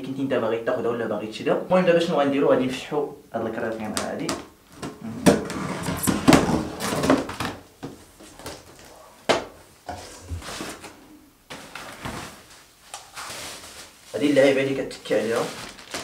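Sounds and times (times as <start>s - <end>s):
cardboard flaps handled: 4.3s - 9.5s.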